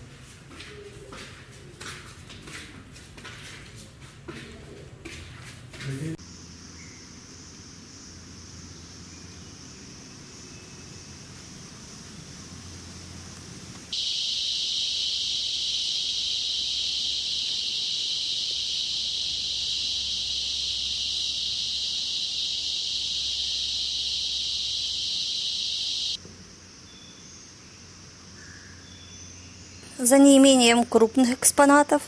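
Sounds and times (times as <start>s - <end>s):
high-pitched insect buzzing: 14.0s - 26.2s.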